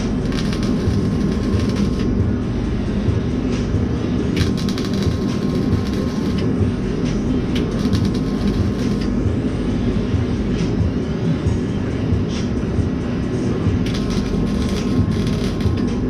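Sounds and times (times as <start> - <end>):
welder crackling: 0.0 - 2.4, 4.2 - 9.3, 13.8 - 16.0
steady low rumble: 0.0 - 16.0.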